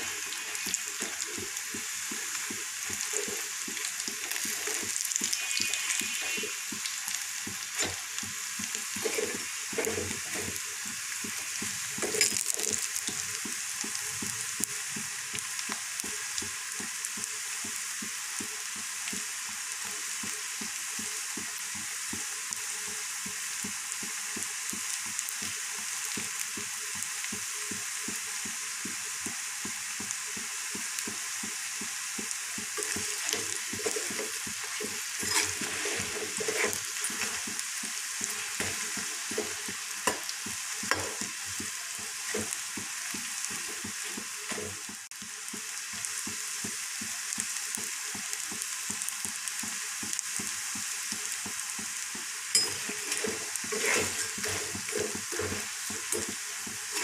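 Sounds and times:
spatula scraping pan: 0.0 - 12.9, 32.7 - 44.9, 52.6 - 57.0
deep-frying sizzle in oil: 0.0 - 57.0.

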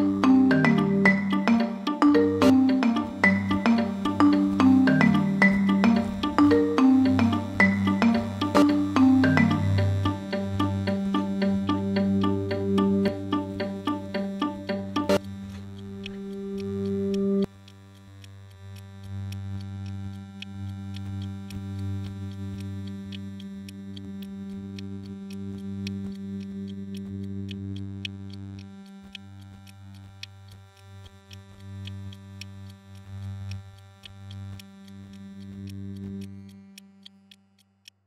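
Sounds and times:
low synthesizer drone: 0.0 - 17.5
electronic clicks and ticks: 0.0 - 38.0.

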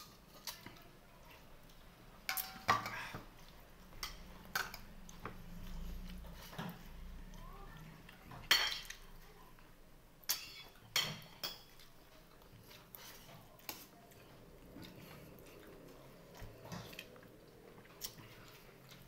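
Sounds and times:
soft chewing: 0.0 - 19.0
dishes clinking: 8.4 - 9.0.

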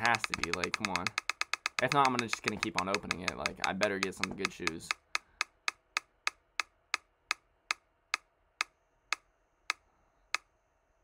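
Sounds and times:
spinner reel ticking: 0.0 - 6.4.

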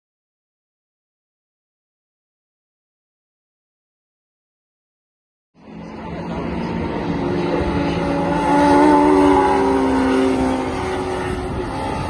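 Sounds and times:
race car engine at high revs: 5.6 - 12.0.

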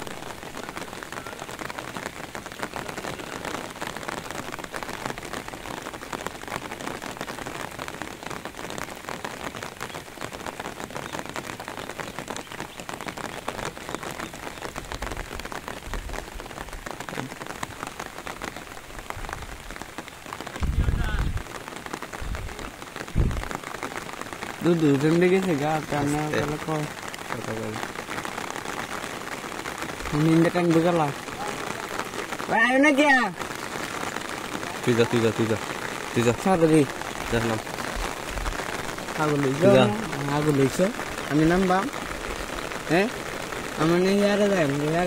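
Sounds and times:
rain falling on river: 0.0 - 45.0
low rumbles: 20.6 - 21.5, 22.2 - 23.6.

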